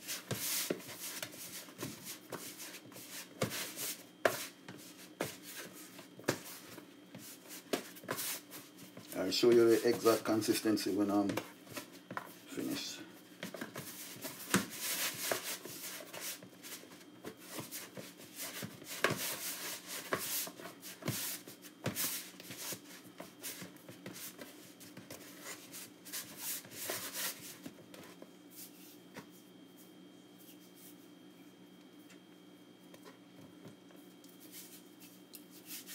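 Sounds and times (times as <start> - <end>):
hands kneading dough: 0.0 - 35.9.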